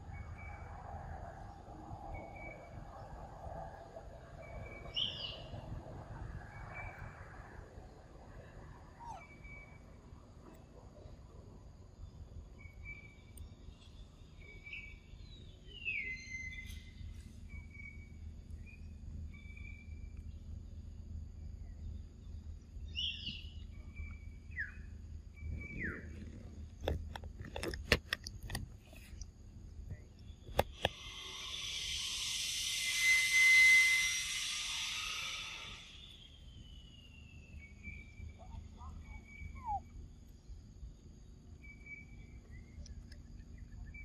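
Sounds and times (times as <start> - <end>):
birds chirping and whistling: 4.4 - 5.5, 14.3 - 20.1, 22.9 - 26.2, 30.3 - 39.9.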